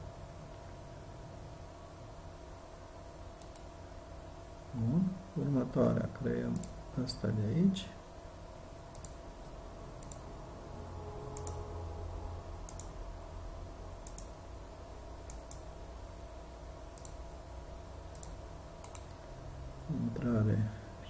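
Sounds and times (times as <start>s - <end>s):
faint low hum: 0.0s - 21.0s
computer mouse clicking: 3.4s - 3.7s, 6.5s - 6.8s, 8.9s - 9.2s, 10.0s - 10.2s, 11.4s - 11.6s, 12.6s - 13.0s, 14.0s - 14.4s, 15.2s - 15.7s, 16.9s - 17.2s, 18.1s - 19.2s.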